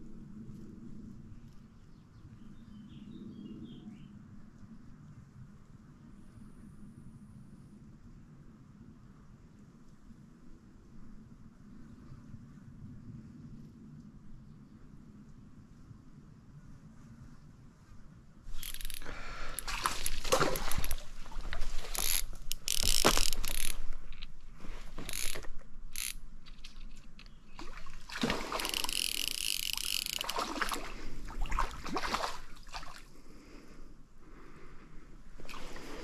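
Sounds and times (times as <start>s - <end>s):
fly reel ratchet clicking: 18.5s - 21.0s, 21.9s - 27.4s, 28.5s - 30.5s.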